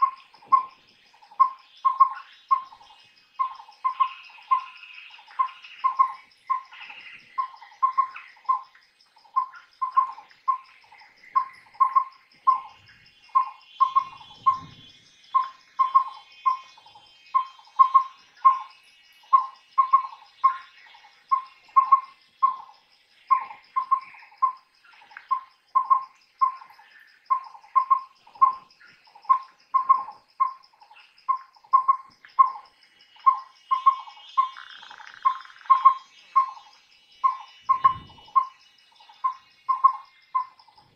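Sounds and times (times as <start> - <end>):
faint bird chirps: 0.0 - 40.9
insect buzz: 0.0 - 40.9
owl whistling hoots: 1.3 - 2.8, 3.4 - 8.6, 9.3 - 20.7, 21.3 - 22.7, 23.3 - 24.6, 27.3 - 30.6, 33.2 - 40.6.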